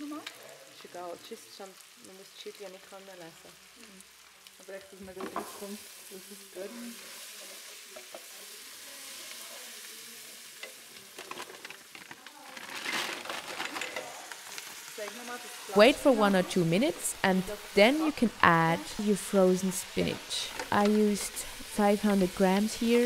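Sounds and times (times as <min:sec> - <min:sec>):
food sizzling in a pot: 0:00.0 - 0:23.0
plastic bag crinkling: 0:11.1 - 0:15.4.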